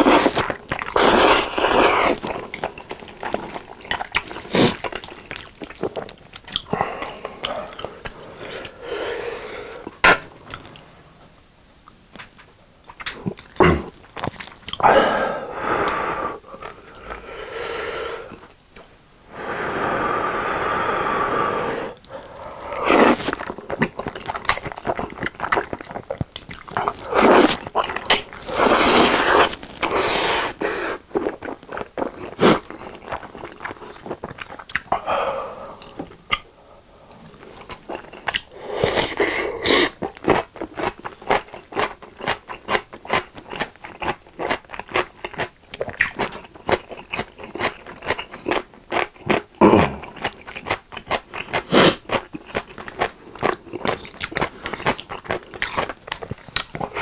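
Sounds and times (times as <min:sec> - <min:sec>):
noodle slurping: 0:00.0 - 0:02.3, 0:19.3 - 0:31.1
sticky chewing and mouth smacks: 0:00.0 - 0:08.8, 0:11.9 - 0:14.8, 0:23.1 - 0:30.0, 0:31.1 - 0:35.0, 0:37.4 - 0:57.0.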